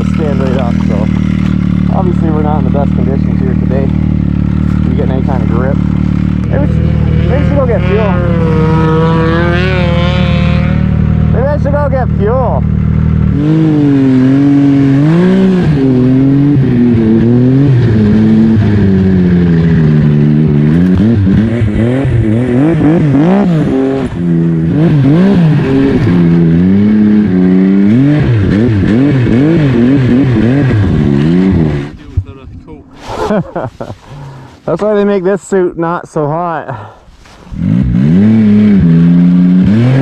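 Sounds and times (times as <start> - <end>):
snowmobile engine revving: 0.0 - 40.0.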